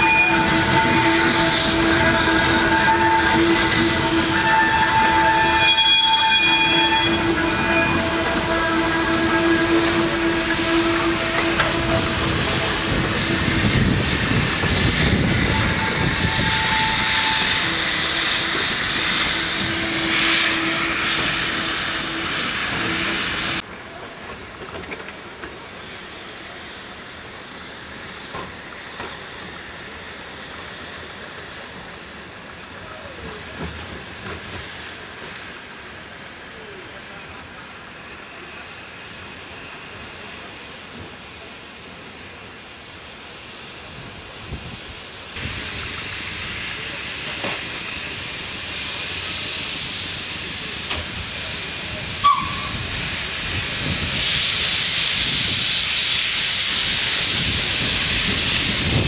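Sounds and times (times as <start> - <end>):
steam locomotive hissing: 0.0 - 59.0
held whistle note: 52.2 - 52.8.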